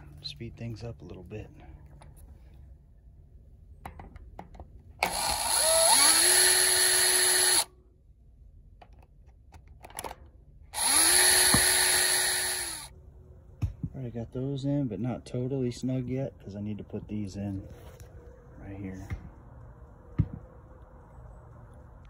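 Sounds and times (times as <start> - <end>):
cordless drill driving screws: 5.0 - 7.7, 10.8 - 12.9.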